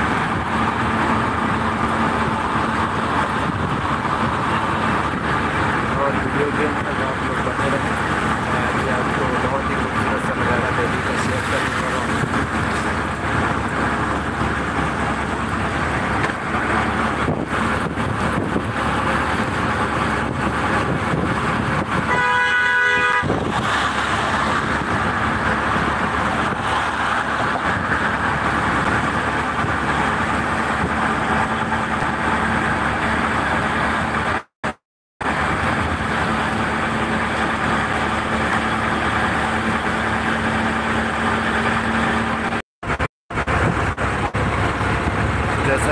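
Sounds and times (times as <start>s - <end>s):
auto-rickshaw engine and road noise: 0.0s - 45.9s
vehicle horn honk: 22.1s - 23.4s
wind rushing: 23.2s - 29.9s.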